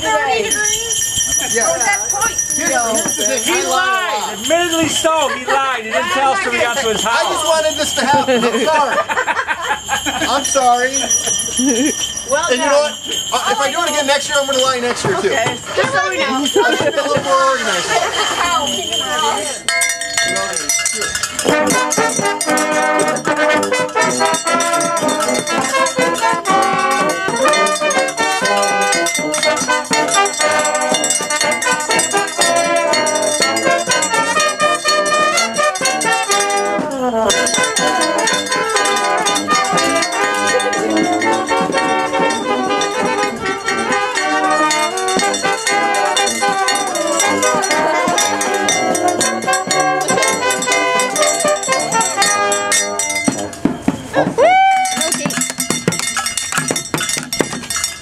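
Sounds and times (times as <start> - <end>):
handbell ringing: 0.0 - 58.0
brass band playing: 20.2 - 53.7.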